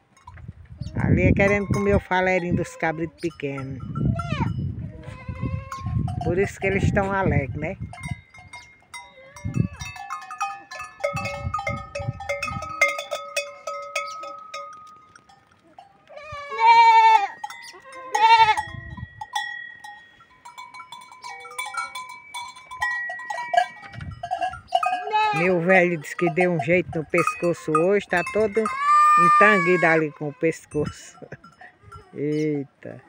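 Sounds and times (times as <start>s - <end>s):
goat neck bells clanking: 0.0s - 33.0s
goats bleating: 4.3s - 6.0s, 16.1s - 18.7s, 24.8s - 26.0s, 28.5s - 30.7s.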